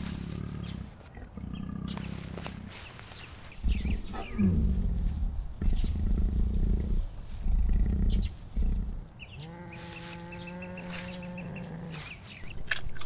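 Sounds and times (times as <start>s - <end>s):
wild cat growling: 0.0s - 2.8s, 3.5s - 12.2s
wild cat moaning call: 3.6s - 12.2s.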